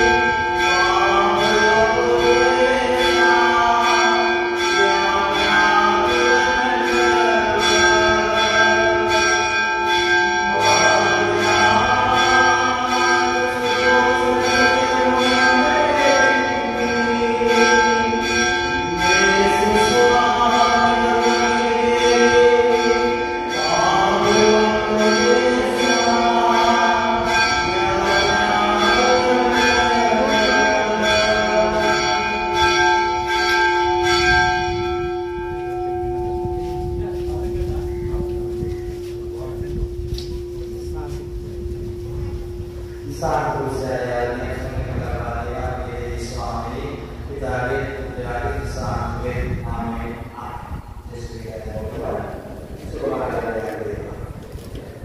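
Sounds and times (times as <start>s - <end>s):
people singing a melody: 0.0s - 9.2s, 10.4s - 32.6s
church bells ringing: 0.0s - 55.0s.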